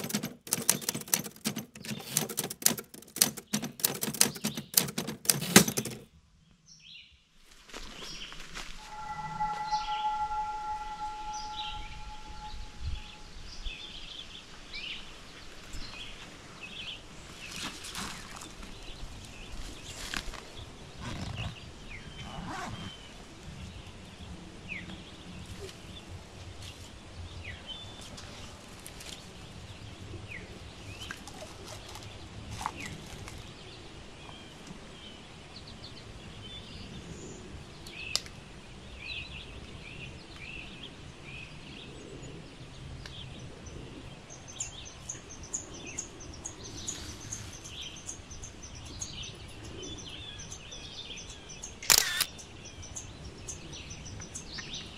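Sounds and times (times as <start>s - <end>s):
small birds chirping: 43.0s - 54.9s.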